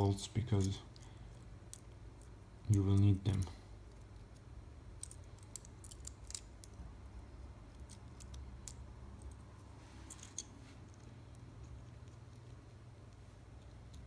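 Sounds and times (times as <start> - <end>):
small plastic clicks: 0.6 - 6.8.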